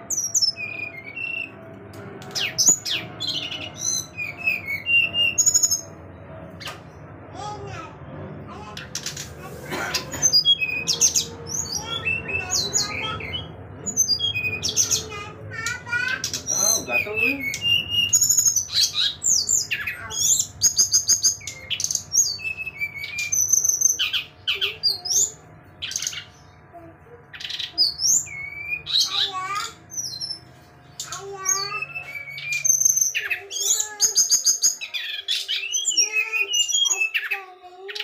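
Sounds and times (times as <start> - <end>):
bird singing whistles and trills: 0.1 - 1.5, 2.3 - 6.0, 10.4 - 15.1, 16.2 - 26.3, 27.3 - 29.3, 31.0 - 37.4.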